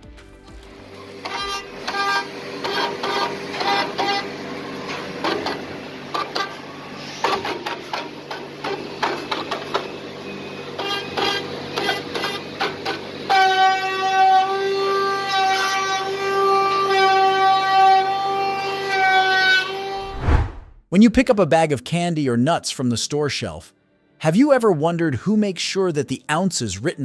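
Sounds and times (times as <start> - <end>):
router cutting whine: 1.0 - 20.0.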